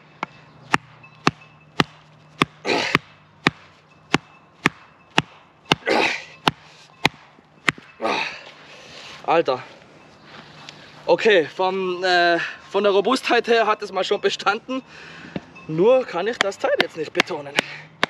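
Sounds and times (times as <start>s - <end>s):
short hard breaths: 2.6s - 3.1s, 5.8s - 7.0s, 8.0s - 11.1s, 14.8s - 15.6s, 17.6s - 18.0s.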